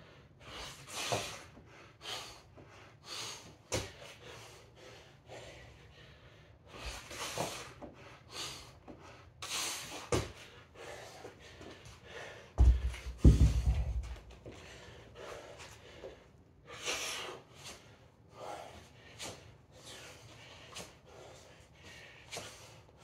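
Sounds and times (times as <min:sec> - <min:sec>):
man breathing hard: 0:00.0 - 0:23.0
feet thudding on rubber floor: 0:03.7 - 0:04.0, 0:10.0 - 0:10.4, 0:12.6 - 0:14.6.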